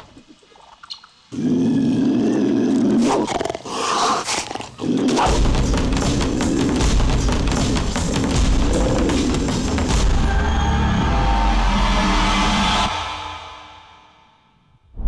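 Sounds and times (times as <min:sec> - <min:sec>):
cartoon cheetah growl: 0:01.3 - 0:05.4
drum-driven rock music: 0:05.3 - 0:12.9.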